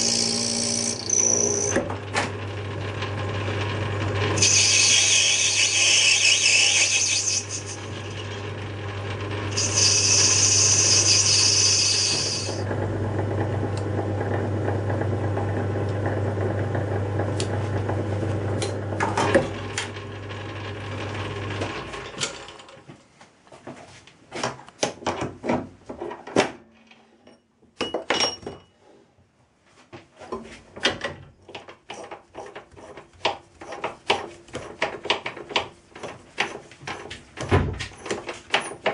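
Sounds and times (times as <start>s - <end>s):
lathe motor hum: 0.0s - 22.2s.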